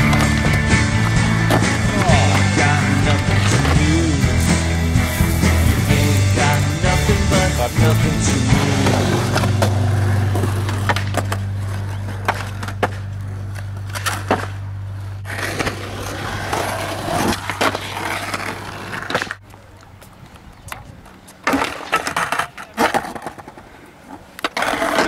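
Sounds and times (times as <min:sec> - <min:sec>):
skateboard clacks: 0:00.0 - 0:04.7, 0:08.6 - 0:14.6, 0:20.3 - 0:25.0
low steady drone: 0:00.0 - 0:16.4
skateboard wheels rolling on concrete: 0:00.0 - 0:25.0.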